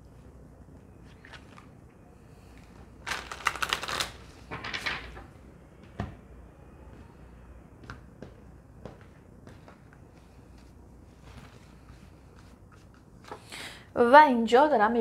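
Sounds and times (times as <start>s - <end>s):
cards shuffled: 3.1s - 5.2s.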